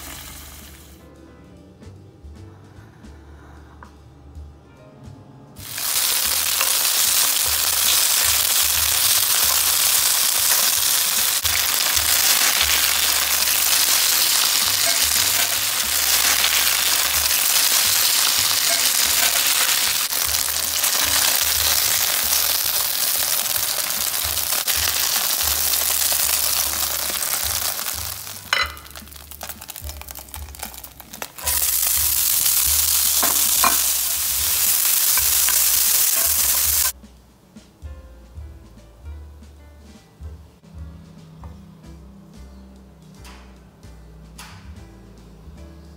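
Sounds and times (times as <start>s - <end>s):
onion sizzling in oil: 0.0s - 1.0s, 5.6s - 37.0s
chicken frying in oil: 5.6s - 37.0s.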